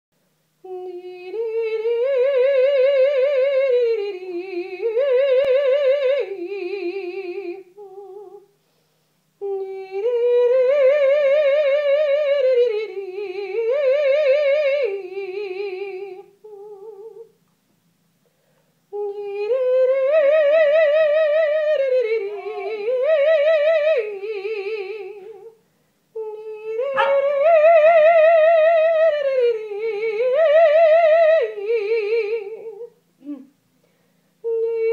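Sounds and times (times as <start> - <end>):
operatic singer vocalising with vibrato: 18.9 - 25.6, 26.2 - 33.5.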